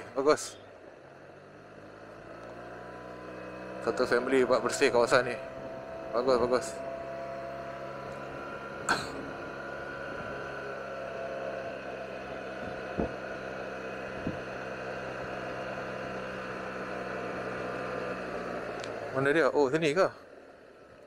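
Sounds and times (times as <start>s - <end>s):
road noise: 0.0s - 21.0s
scooter engine cruising: 0.0s - 21.0s
dull knocks: 12.6s - 13.2s, 14.2s - 14.4s.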